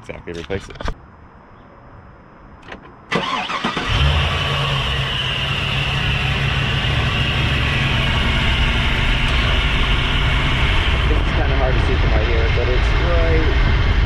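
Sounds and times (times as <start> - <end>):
car engine starting and idling: 2.6 - 13.4
high rubbing belt whine: 4.7 - 14.0.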